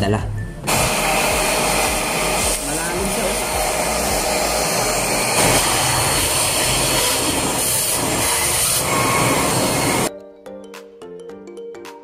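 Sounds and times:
handheld vacuum cleaner running: 0.7 - 10.1.

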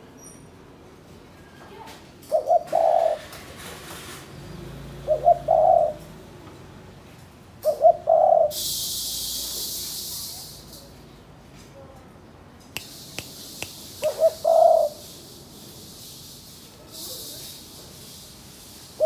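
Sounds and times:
dove cooing: 2.3 - 3.6, 4.8 - 6.2, 7.6 - 8.6, 14.0 - 15.2
steady high hiss: 12.8 - 19.0.

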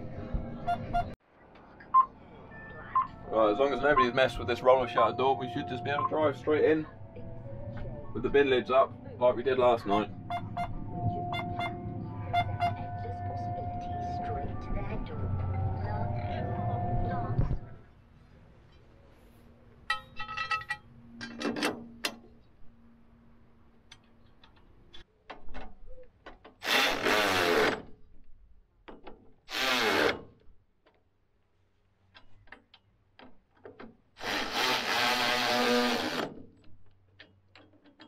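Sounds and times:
metal parts clinking and rattling: 19.9 - 22.4, 36.5 - 38.0
cordless drill whirring: 34.2 - 36.3.

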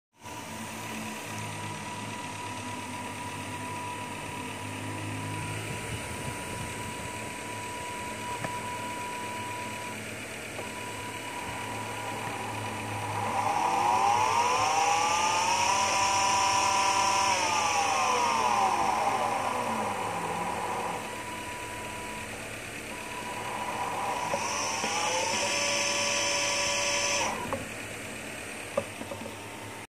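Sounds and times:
electric motor whine: 0.2 - 29.9
steady high tone: 0.2 - 29.9.

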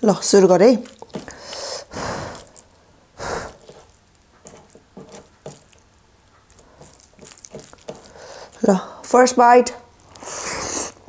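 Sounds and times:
fingers squishing rice: 0.6 - 8.8
rustles: 2.2 - 8.7.

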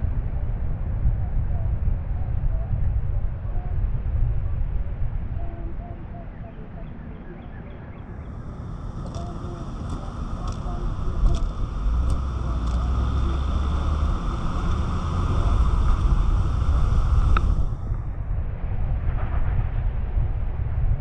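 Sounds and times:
wind buffeting microphone: 8.0 - 21.0
tyres hissing on wet pavement: 8.3 - 17.8
sharp ticks: 8.6 - 17.7.

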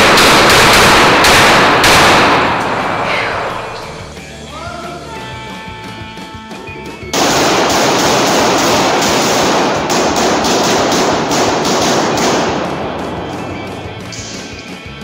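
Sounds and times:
rapid pistol shots echoing indoors: 0.0 - 4.1, 7.1 - 14.8.

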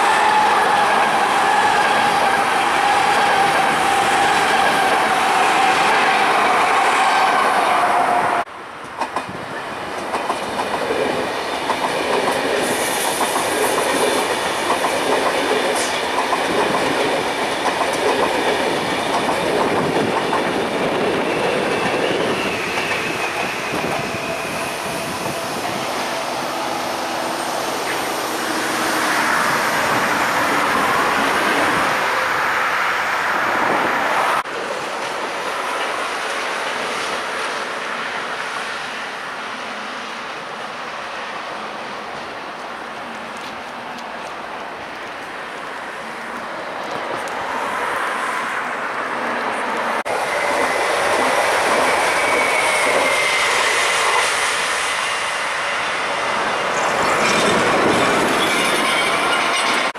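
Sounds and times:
train wheels clattering over rails: 8.8 - 26.2.

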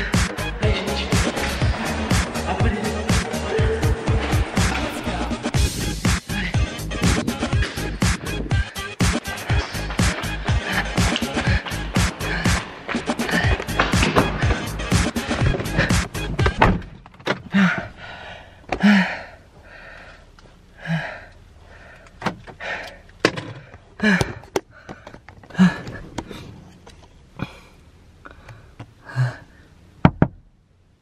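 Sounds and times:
breathy noises: 0.0 - 29.8
car door opening and shutting: 15.3 - 17.9, 22.2 - 22.6.

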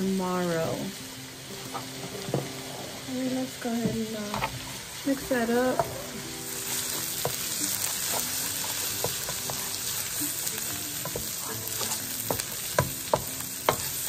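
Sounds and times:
onions sizzling in a frying pan: 0.0 - 14.0
utensil tapping and scraping pan: 3.8 - 4.6, 6.7 - 14.0.

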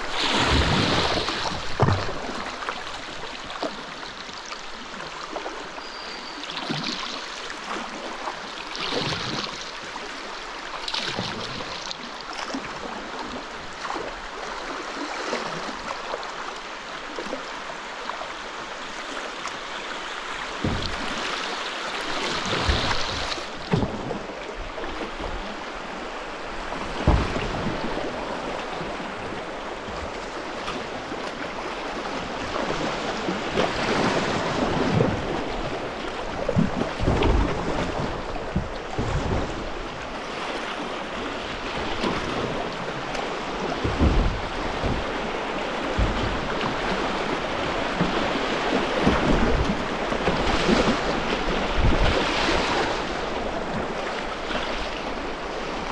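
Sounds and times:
wind thumps on microphone: 43.8 - 48.2, 49.1 - 52.3.

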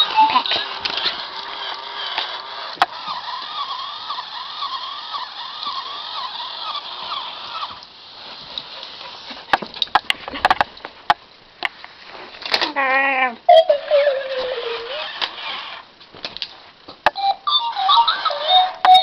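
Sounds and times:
toy electronic warble: 0.0 - 8.2, 13.5 - 15.8, 17.1 - 19.0
sharp clicks and knocks: 9.5 - 11.8.

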